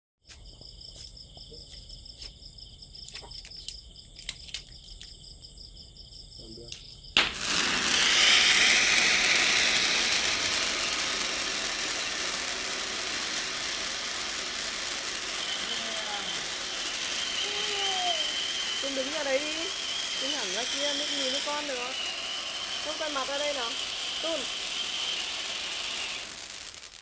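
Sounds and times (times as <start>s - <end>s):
crickets chirping: 0.2s - 26.8s
firework hissing sparks: 7.2s - 27.0s.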